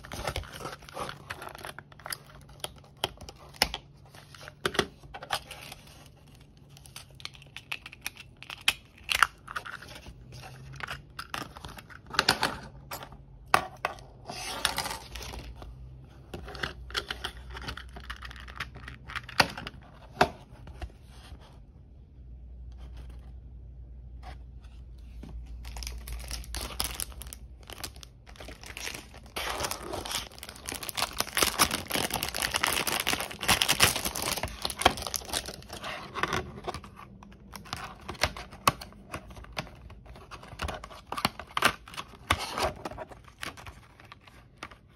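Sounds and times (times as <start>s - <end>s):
plastic packaging crinkling: 0.0s - 12.2s, 25.5s - 44.7s.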